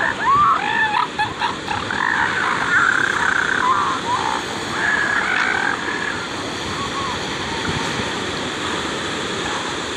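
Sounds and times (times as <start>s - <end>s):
elephant seal bawling: 0.0s - 6.2s.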